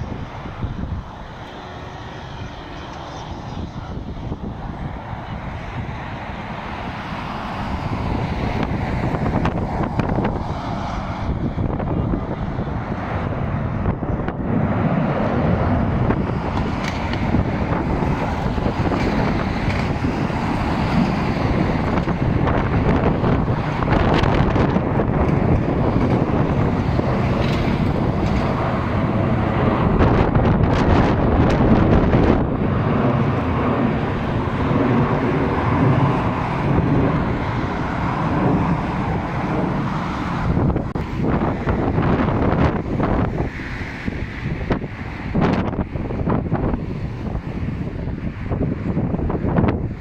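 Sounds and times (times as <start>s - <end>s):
jet airliner rumble overhead: 0.0s - 50.0s
wind buffeting microphone: 0.0s - 50.0s.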